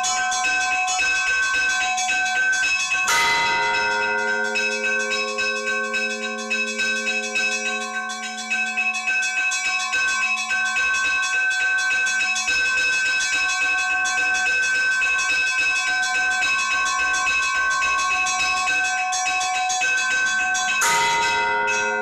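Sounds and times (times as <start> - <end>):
church bells ringing: 2.5 - 10.4, 20.7 - 22.0
low bell hum: 3.1 - 9.0, 20.8 - 22.0.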